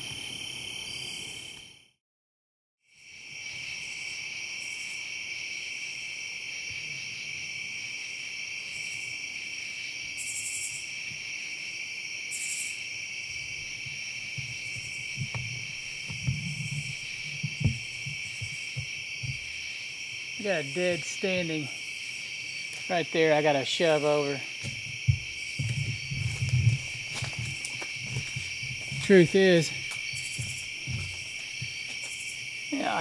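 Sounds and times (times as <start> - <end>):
night insects trilling: 0.0 - 1.9, 2.9 - 33.0
high insect buzzes: 12.3 - 33.0
low knocks and rustles: 13.6 - 19.6, 24.6 - 32.3.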